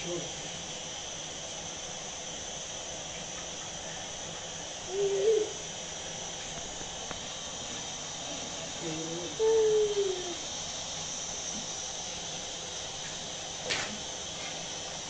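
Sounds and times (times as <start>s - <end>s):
gas stove burner hissing: 0.0s - 15.0s
short wavering hoot: 4.8s - 5.8s, 8.2s - 10.4s.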